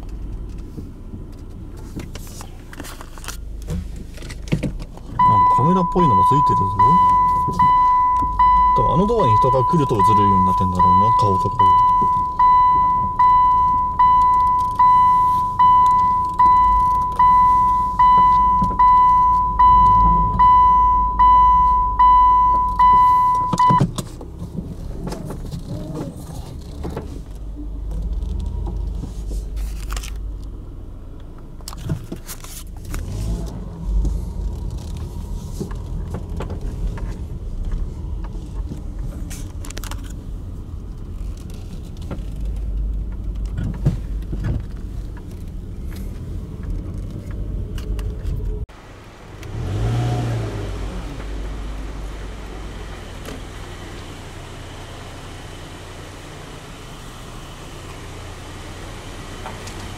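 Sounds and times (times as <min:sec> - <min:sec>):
car running at low speed: 0:00.0 - 0:59.9
electronic warning beeper: 0:05.2 - 0:23.8.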